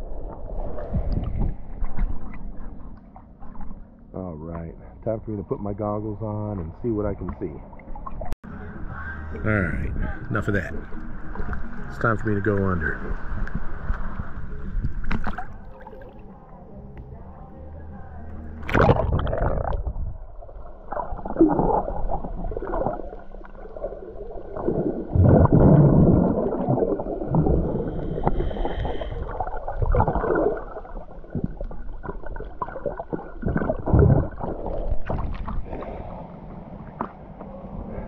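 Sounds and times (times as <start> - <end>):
underwater churning and gurgling: 0.0 - 4.0, 18.6 - 38.0
microphone splashing into water: 18.6 - 20.3, 24.6 - 35.9.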